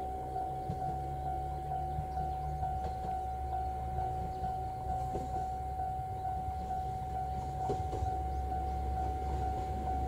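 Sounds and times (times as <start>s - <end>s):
diesel railcar rumbling: 0.0s - 10.0s
level crossing alarm ringing: 0.0s - 10.0s.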